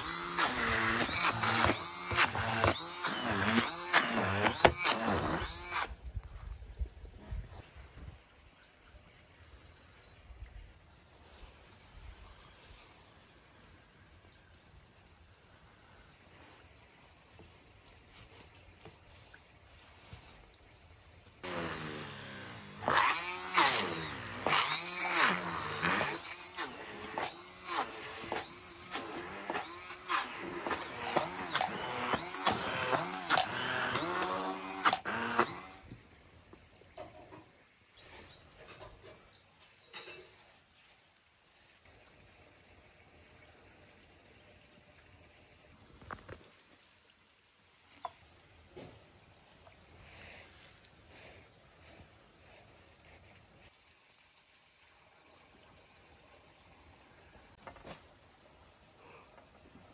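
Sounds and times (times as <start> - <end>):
immersion blender running: 0.0 - 5.9, 21.4 - 35.9.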